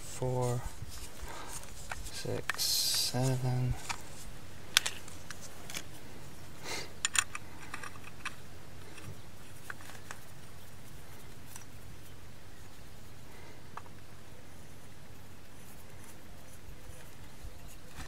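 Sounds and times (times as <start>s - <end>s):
steady faint hiss: 0.0s - 18.0s
hands handling small objects: 0.1s - 6.4s, 7.0s - 12.2s.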